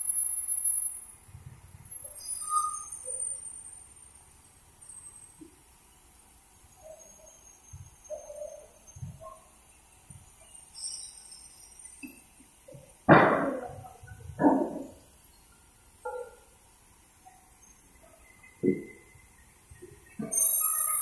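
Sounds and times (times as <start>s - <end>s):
knocks and clinks of timber: 12.7s - 15.0s.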